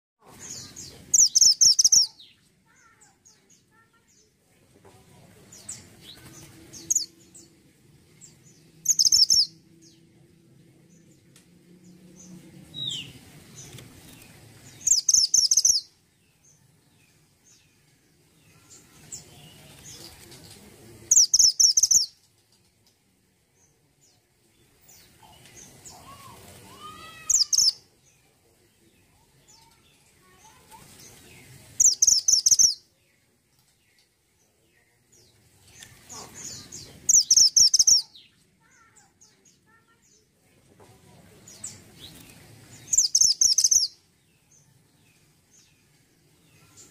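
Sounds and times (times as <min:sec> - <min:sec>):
soft bird calls: 0:00.2 - 0:07.6, 0:08.2 - 0:10.0, 0:11.8 - 0:23.1, 0:24.5 - 0:40.3, 0:41.1 - 0:44.0
bird singing rapid high notes: 0:00.6 - 0:02.4, 0:06.7 - 0:07.1, 0:08.8 - 0:09.6, 0:14.7 - 0:16.0, 0:21.1 - 0:22.1, 0:26.8 - 0:27.8, 0:31.8 - 0:32.8, 0:36.6 - 0:38.3, 0:42.8 - 0:44.0.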